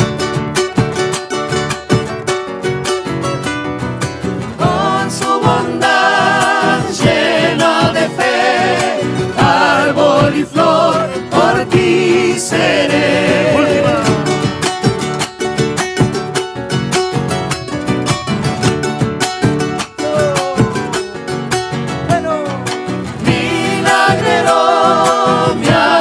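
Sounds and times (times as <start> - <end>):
small strummed string instrument: 0.0 - 26.0
strummed guitars: 0.0 - 26.0
person singing with vibrato: 4.6 - 14.6, 23.2 - 26.0
bass drum beaten with sticks: 4.6 - 16.4, 18.2 - 21.1, 23.2 - 26.0.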